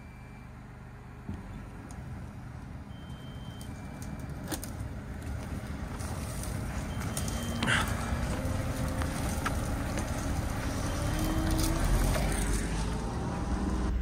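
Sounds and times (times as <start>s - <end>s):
diesel engine running under load: 0.0s - 14.0s
branches cracking: 3.6s - 12.7s.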